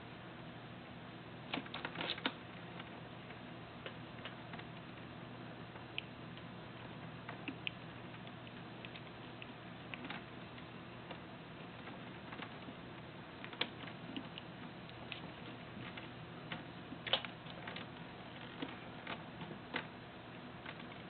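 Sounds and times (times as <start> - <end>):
kitten chewing on cord: 3.9 - 20.0.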